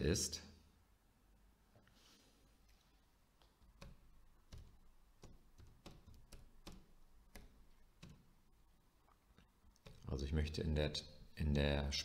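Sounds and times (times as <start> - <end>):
keyboard typing: 3.4 - 8.4, 9.7 - 10.1.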